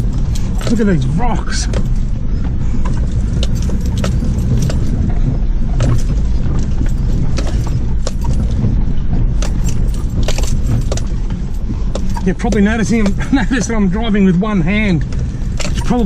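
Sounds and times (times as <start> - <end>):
low engine rumble: 0.0 - 16.0
vehicle knocks and rattles: 0.0 - 16.0.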